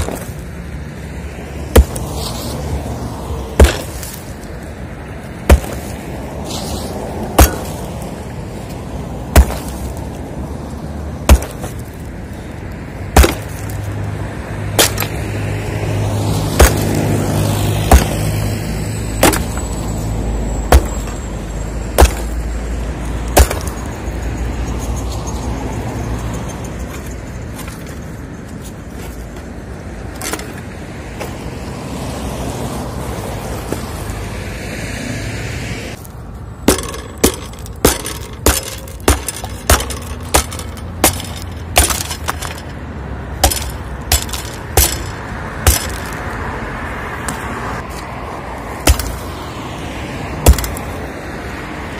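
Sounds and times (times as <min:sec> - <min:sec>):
road traffic rumble: 0:00.0 - 0:51.9
sledgehammer striking concrete: 0:01.7 - 0:02.1, 0:03.6 - 0:04.2, 0:05.4 - 0:06.0, 0:07.3 - 0:07.8, 0:09.3 - 0:10.0, 0:11.2 - 0:12.0, 0:13.2 - 0:13.8, 0:14.8 - 0:15.2, 0:16.5 - 0:17.2, 0:17.8 - 0:18.4, 0:19.2 - 0:19.8, 0:20.7 - 0:21.2, 0:21.9 - 0:22.4, 0:23.4 - 0:23.9, 0:36.6 - 0:42.7, 0:43.4 - 0:46.2, 0:48.8 - 0:49.3, 0:50.4 - 0:50.9.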